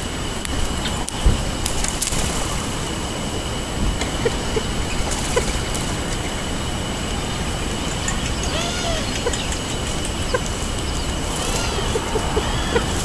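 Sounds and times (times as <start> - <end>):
outdoor background hum: 0.0 - 13.0
thin steady high tone: 2.9 - 13.0
faint bird chips: 7.3 - 13.0.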